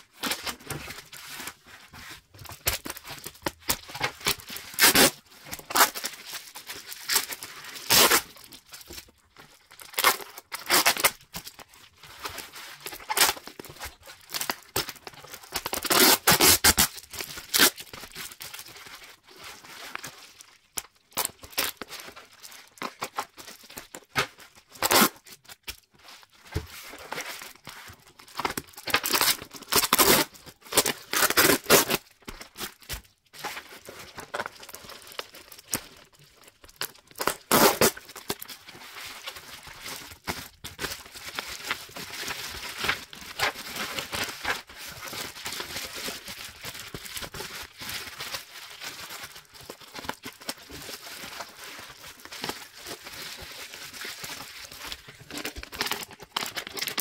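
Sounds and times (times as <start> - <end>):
bubble wrap crinkling: 0.0 - 57.0
packing tape ripping: 2.6 - 6.2, 7.0 - 8.5, 9.8 - 11.2, 15.5 - 17.9, 24.2 - 25.3, 28.3 - 32.0, 37.1 - 38.4.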